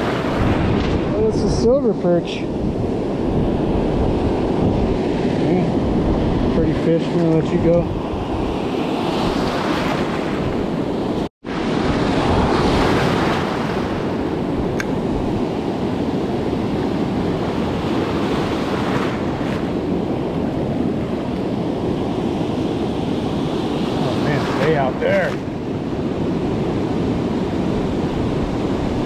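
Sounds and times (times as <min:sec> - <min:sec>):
ocean surf breaking: 0:00.0 - 0:29.0
wind on microphone: 0:00.0 - 0:29.0.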